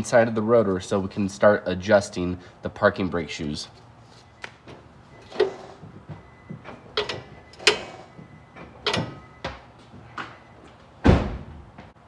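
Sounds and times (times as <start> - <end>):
parking brake metallic clunks: 4.6 - 9.7.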